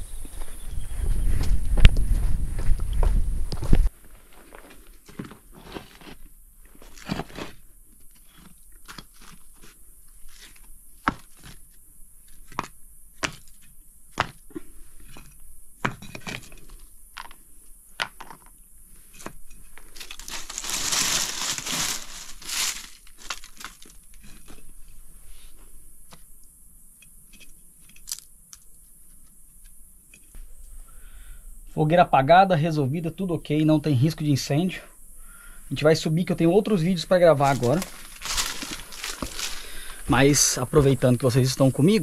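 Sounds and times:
rustling hiss: 18.8 - 32.0, 33.4 - 42.0
dry leaves and sticks crunching: 19.8 - 24.6, 36.7 - 40.8.

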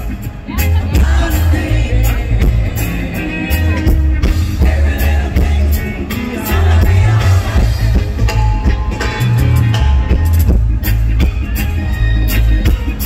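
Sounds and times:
man singing: 0.0 - 9.2
deep bass line: 0.0 - 13.0
reggae band playing: 0.0 - 13.0.

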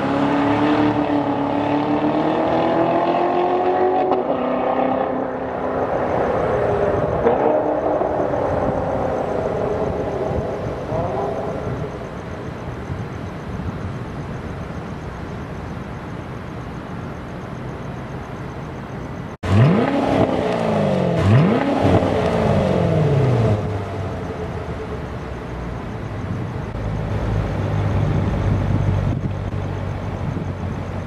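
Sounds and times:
car engine accelerating: 0.0 - 11.9, 19.4 - 30.5.

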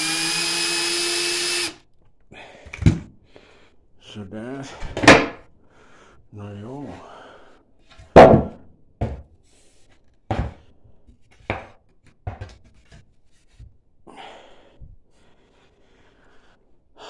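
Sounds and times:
wooden chair parts knocking: 11.4 - 12.9.

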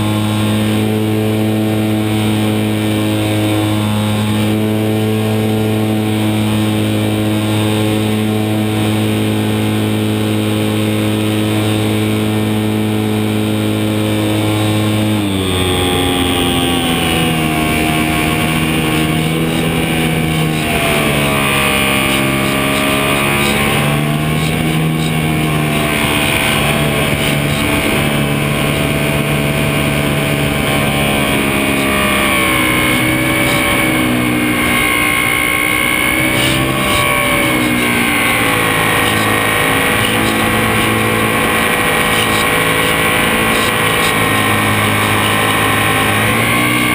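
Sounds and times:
model airplane motor drone: 0.0 - 46.9.

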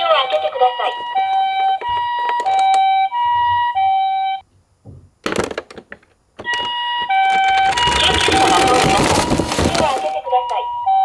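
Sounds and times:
toy two-tone siren: 0.4 - 4.4, 6.5 - 9.2, 9.8 - 11.0
knocking and rustling: 4.8 - 10.1.

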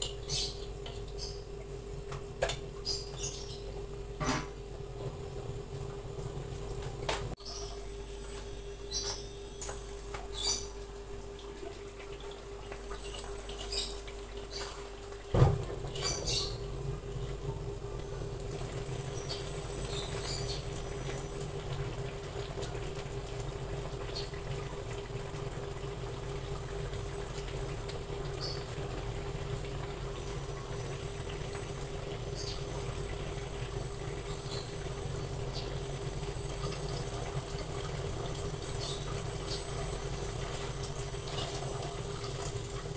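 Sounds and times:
steady hum: 0.0 - 42.9
gravy bubbling and popping: 10.8 - 42.9.

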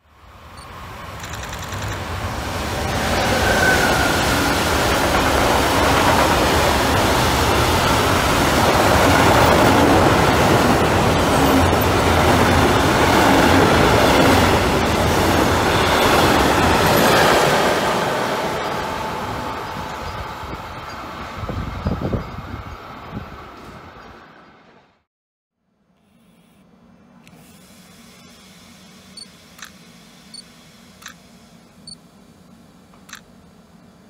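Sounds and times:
electric locomotive passing: 0.0 - 25.0
wheels rumbling on rail: 0.1 - 24.9.

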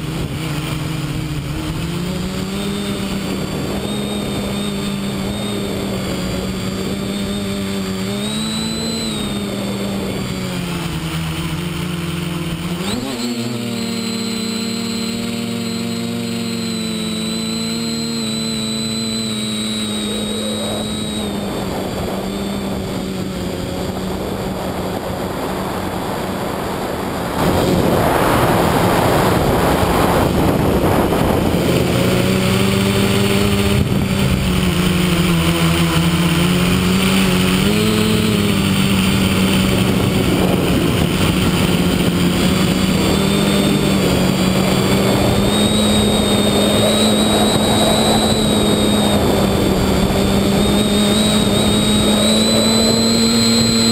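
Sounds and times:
drone motors humming: 0.0 - 53.9
rush of air noise: 18.9 - 53.9.

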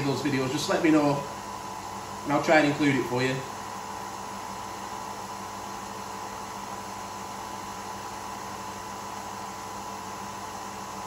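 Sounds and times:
coffee machine humming: 0.0 - 11.0.

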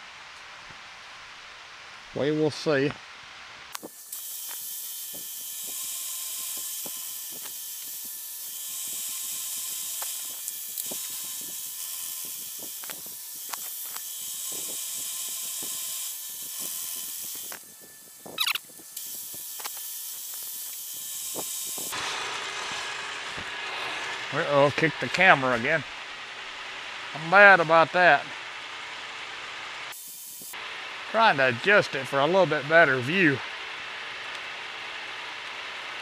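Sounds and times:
end mill cutting metal hiss: 3.7 - 25.8
short wavering squeal: 18.3 - 18.6.

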